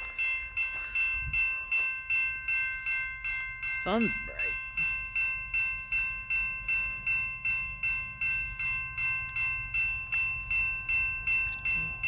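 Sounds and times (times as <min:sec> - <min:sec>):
crossing warning bell ringing: 0:00.0 - 0:12.0.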